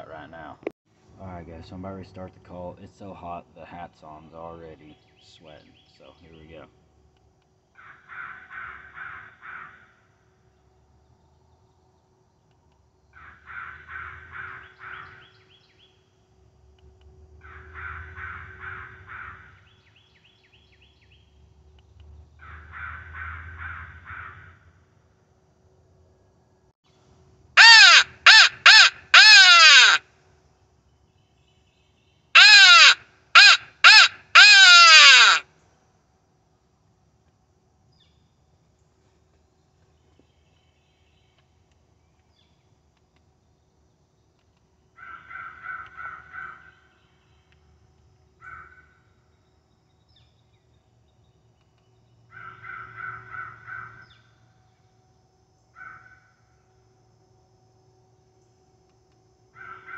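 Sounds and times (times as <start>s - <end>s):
crow call caws: 7.8s - 10.1s, 13.2s - 15.4s, 17.4s - 19.8s, 22.4s - 24.7s, 27.6s - 30.1s, 32.4s - 35.5s, 45.0s - 47.0s, 48.4s - 49.0s, 52.3s - 54.2s, 55.8s - 56.4s, 59.6s - 59.9s.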